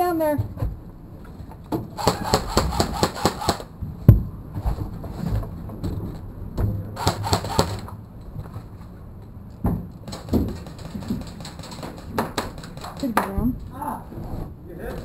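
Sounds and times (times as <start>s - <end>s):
knocks and thumps: 9.6s - 13.7s.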